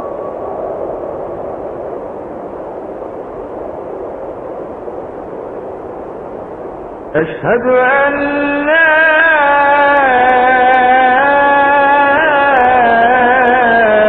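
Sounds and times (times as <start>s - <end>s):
steady hiss with low rumble: 0.0s - 14.0s
man's voice holding note: 7.2s - 8.6s.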